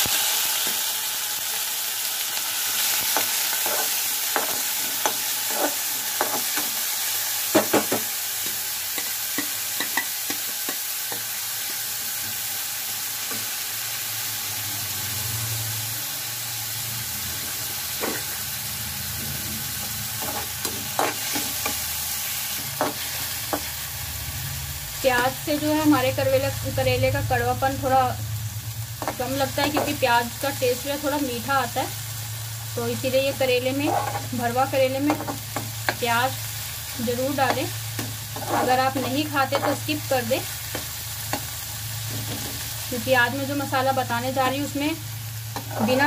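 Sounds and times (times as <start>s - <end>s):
onion and garlic sizzling in oil: 0.0s - 46.0s
spoon scraping and tapping pan: 3.1s - 6.7s, 7.5s - 11.8s, 35.0s - 36.0s.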